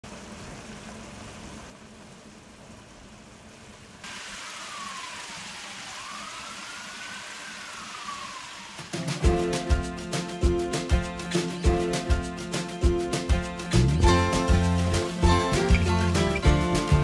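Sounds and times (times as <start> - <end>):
food sizzling in a pot: 4.0 - 9.1.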